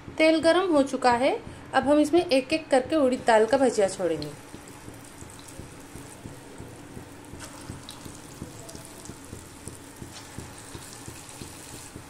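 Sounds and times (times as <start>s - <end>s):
hot oil sizzling and crackling: 4.2s - 12.0s.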